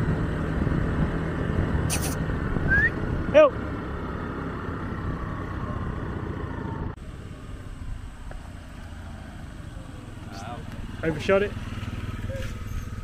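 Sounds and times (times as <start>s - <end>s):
wind rumble: 0.0s - 8.3s
scooter engine: 0.0s - 13.0s.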